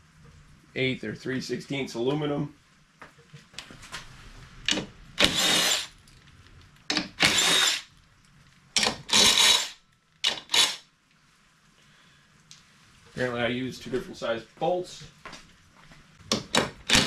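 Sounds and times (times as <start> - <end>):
cordless power driver bursts: 5.2 - 5.9, 6.9 - 7.9, 8.8 - 10.8.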